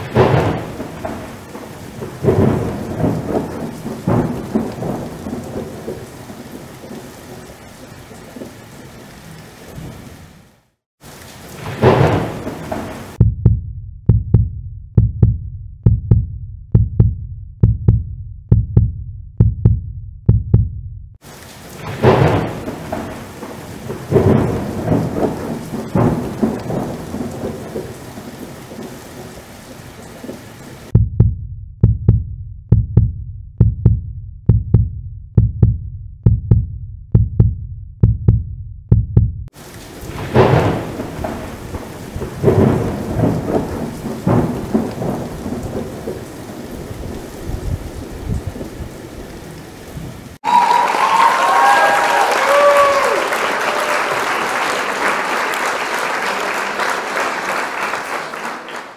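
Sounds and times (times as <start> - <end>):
thunder rumbling: 0.0 - 10.4, 11.0 - 13.3, 21.2 - 31.0, 39.4 - 54.4
steady rain: 0.0 - 13.2, 21.2 - 31.0, 39.5 - 58.9
deep steady drumbeat: 13.2 - 21.2, 30.9 - 39.5.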